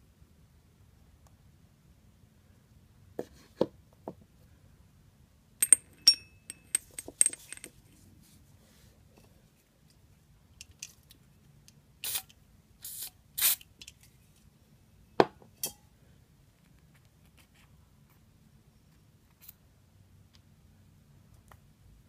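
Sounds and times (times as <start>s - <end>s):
metal parts scraping: 5.6s - 7.8s.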